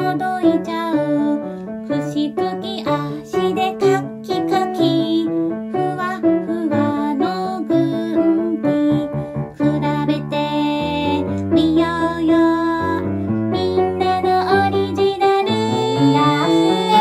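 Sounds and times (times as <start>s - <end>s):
piano and keyboard accompaniment: 0.0s - 17.0s
woman singing: 0.0s - 17.0s.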